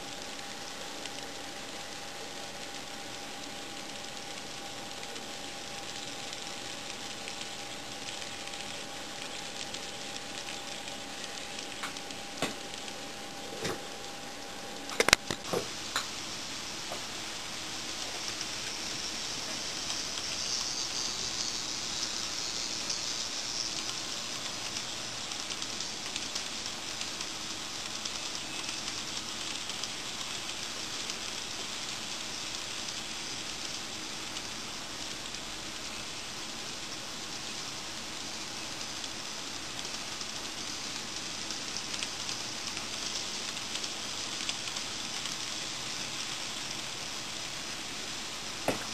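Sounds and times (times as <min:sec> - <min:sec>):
model train wheels rattling: 0:15.0 - 0:47.8.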